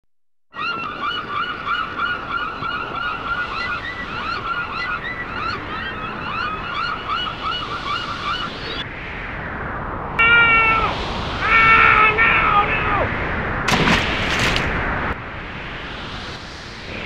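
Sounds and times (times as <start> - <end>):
gulls calling: 0.6 - 8.8, 10.2 - 14.8
surf washing: 10.2 - 17.0.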